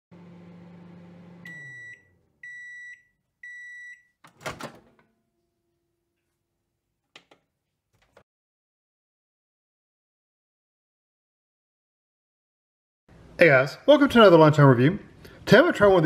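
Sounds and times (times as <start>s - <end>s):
microwave humming: 0.1s - 6.1s
microwave door opening: 4.2s - 5.1s.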